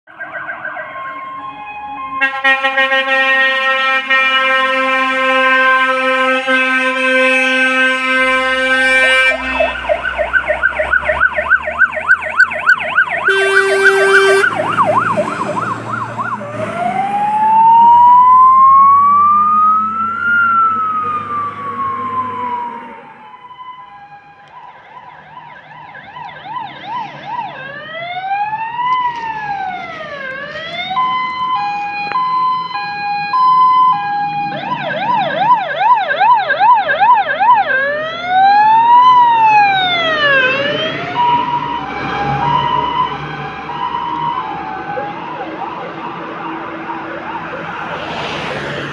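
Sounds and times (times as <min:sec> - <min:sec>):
siren yelping and wailing: 0:00.1 - 0:02.5, 0:07.8 - 0:48.9
distant siren: 0:00.1 - 0:48.9
fire engine air horns: 0:01.9 - 0:10.3, 0:13.0 - 0:17.6, 0:19.2 - 0:24.4
truck engine rumbling: 0:02.3 - 0:48.9.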